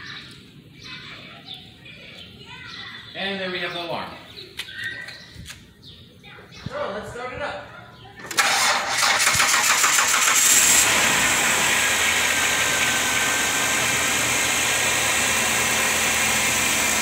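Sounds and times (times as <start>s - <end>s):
car starter cranking: 8.2s - 17.0s
car engine idling: 8.3s - 17.0s.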